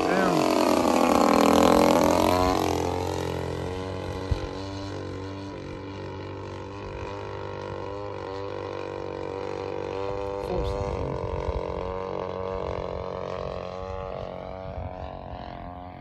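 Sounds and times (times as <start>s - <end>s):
model plane engine droning: 0.0s - 16.0s.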